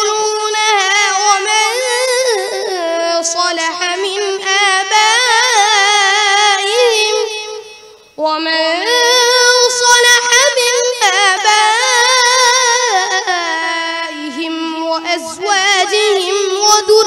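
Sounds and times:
boy chanting through microphone: 0.0s - 17.0s.

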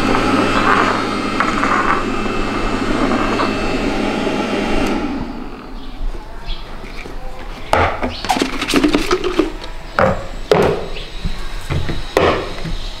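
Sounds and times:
plastic containers clattering: 6.8s - 10.2s.

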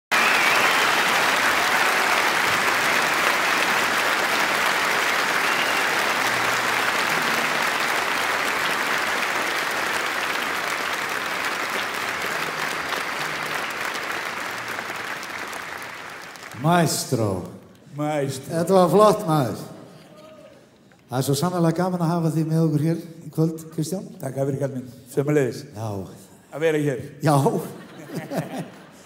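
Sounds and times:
audience applauding: 0.0s - 17.6s.

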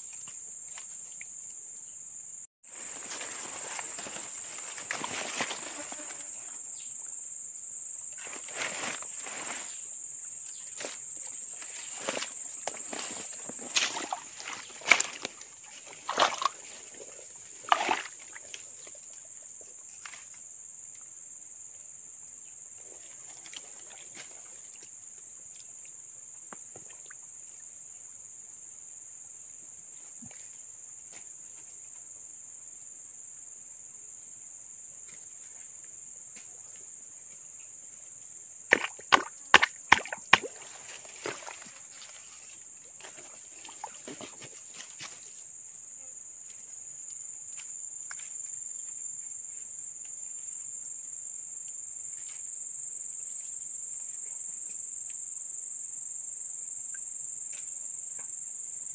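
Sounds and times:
high drone of insects: 0.0s - 58.9s
muddy water sloshing and splashing: 2.7s - 6.5s, 8.2s - 9.8s, 10.5s - 20.4s, 22.8s - 25.0s, 38.7s - 45.5s.

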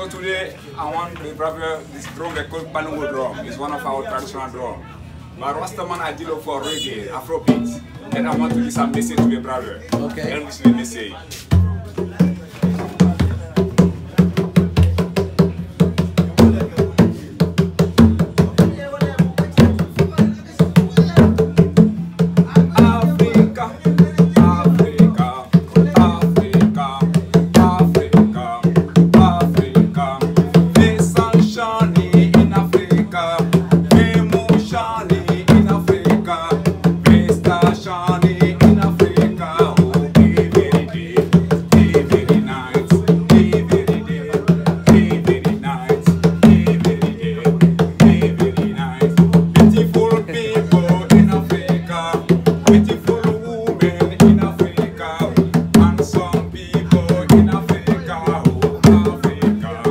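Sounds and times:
man singing: 6.6s - 10.9s, 18.2s - 59.9s
hand drums playing: 7.4s - 59.9s.

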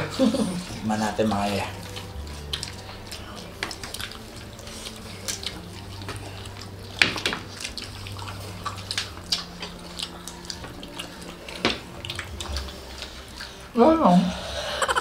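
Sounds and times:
people chewing: 0.0s - 15.0s
wet mouth clicks and lip smacks: 1.8s - 13.5s.

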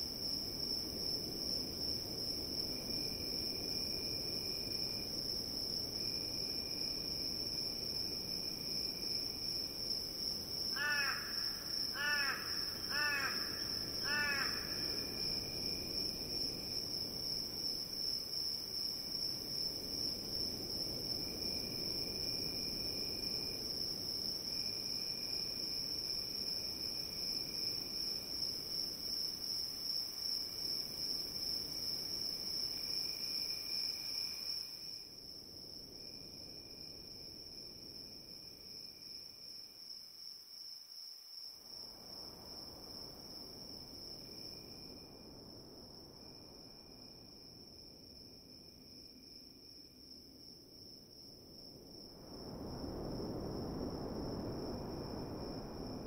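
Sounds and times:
crickets trilling: 0.0s - 56.0s
lower insect trill: 0.0s - 56.0s
crow cawing: 10.8s - 14.9s.

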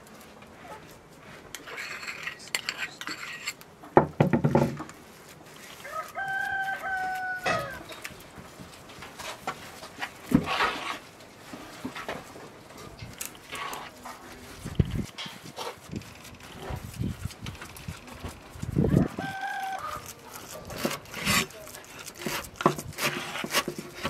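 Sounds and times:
metal spoon scraping a pan: 1.6s - 3.6s, 19.9s - 24.0s
rooster crowing: 5.8s - 7.9s, 18.8s - 20.2s.

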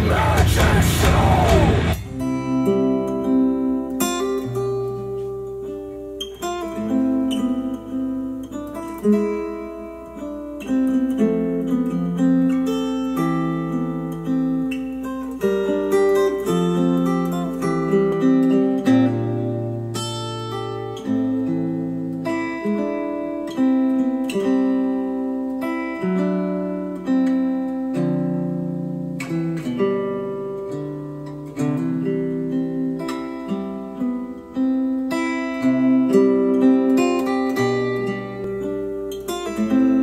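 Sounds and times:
acoustic guitar music: 0.0s - 40.0s.

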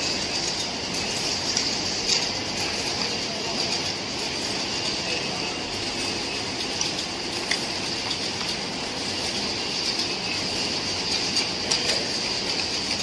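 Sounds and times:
conveyor machinery hissing: 0.0s - 13.0s.

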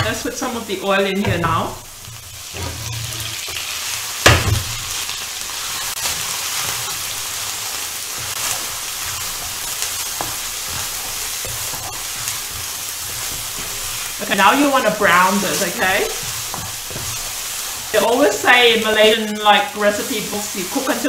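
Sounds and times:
onions sizzling in oil: 0.0s - 21.0s.

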